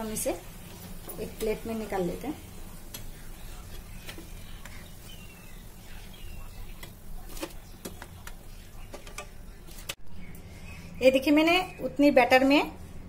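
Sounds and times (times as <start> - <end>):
fritters sizzling in hot oil: 0.0 - 9.6.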